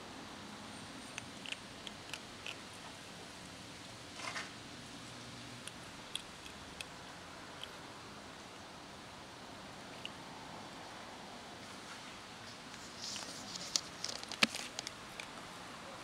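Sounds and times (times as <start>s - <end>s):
kittens crunching dry kibble: 1.1s - 3.0s, 12.8s - 15.5s
rustling: 11.8s - 15.4s.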